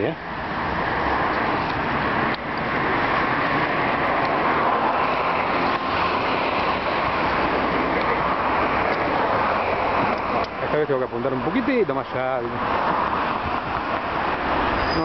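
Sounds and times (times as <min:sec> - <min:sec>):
wind buffeting microphone: 0:11.5 - 0:14.9.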